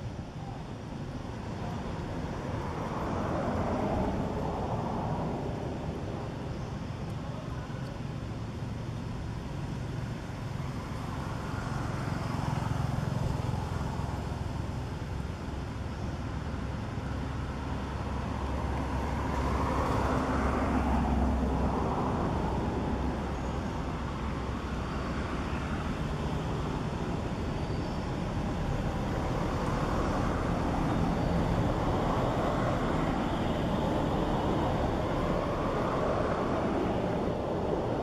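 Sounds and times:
outdoor background noise: 0:00.0 - 0:38.0.

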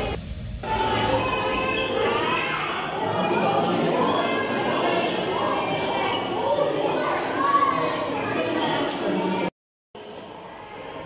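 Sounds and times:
music playing: 0:00.0 - 0:07.6
crowd chattering in a hall: 0:00.0 - 0:11.0.

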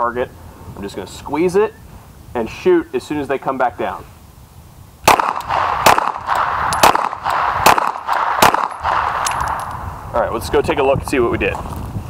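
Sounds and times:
pistol shots with ringing echo: 0:05.0 - 0:09.7.

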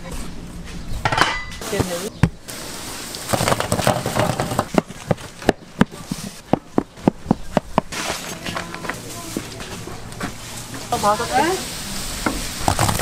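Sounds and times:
kitchen clatter: 0:01.0 - 0:01.9.

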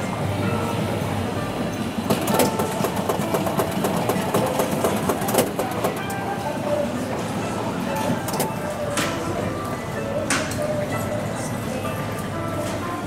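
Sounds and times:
machine mechanism clicking and clattering: 0:02.1 - 0:06.2.

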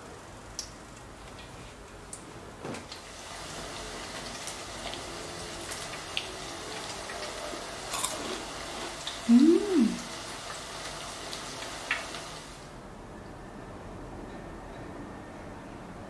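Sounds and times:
fried food crackling: 0:02.9 - 0:12.6.

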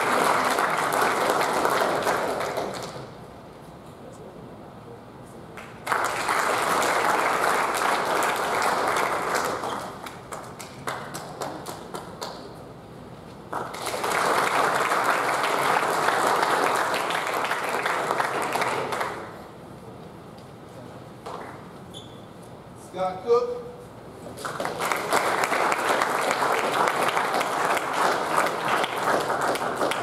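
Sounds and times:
audience applauding: 0:00.0 - 0:03.1, 0:05.6 - 0:12.5, 0:13.5 - 0:19.4, 0:24.4 - 0:30.0.

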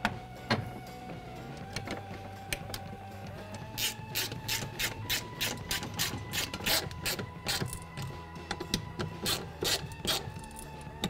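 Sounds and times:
hand ratchet clicking: 0:03.6 - 0:10.7.

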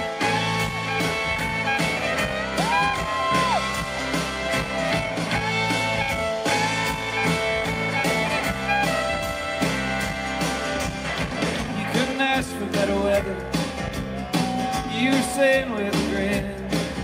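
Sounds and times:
fiddle: 0:00.0 - 0:12.1
country-rock band playing: 0:00.0 - 0:17.0.

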